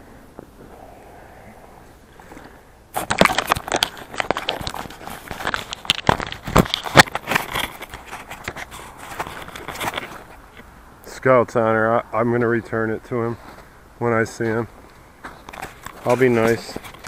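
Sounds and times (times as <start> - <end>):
fishing line crinkling in hands: 0.3 - 10.7, 14.4 - 17.0.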